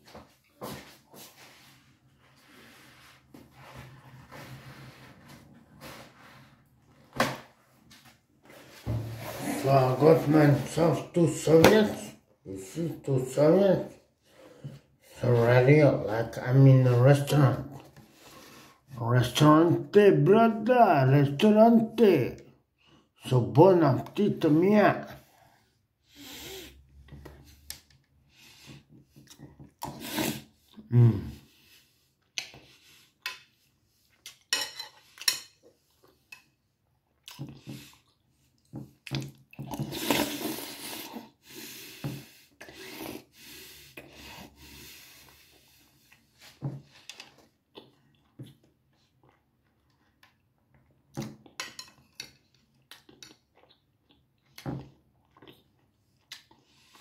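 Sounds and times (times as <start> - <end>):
chewing: 47.2 - 51.6, 52.6 - 57.0.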